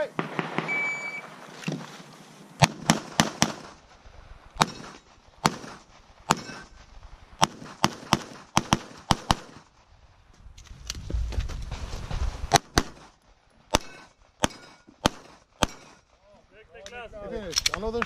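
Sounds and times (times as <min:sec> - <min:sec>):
pistol shots with echo: 0:00.2 - 0:01.2, 0:04.6 - 0:06.6, 0:13.7 - 0:16.0.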